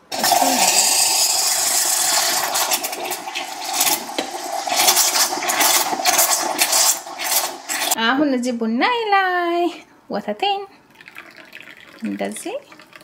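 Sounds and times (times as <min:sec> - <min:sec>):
steam wand hissing: 0:00.1 - 0:08.0.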